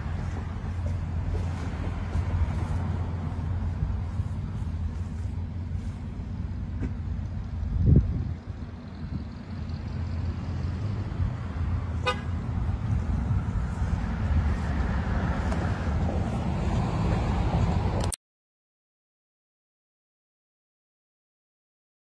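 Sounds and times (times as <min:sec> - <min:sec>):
cars passing with low rumble: 0:00.0 - 0:18.2
car horn toot: 0:12.0 - 0:12.4.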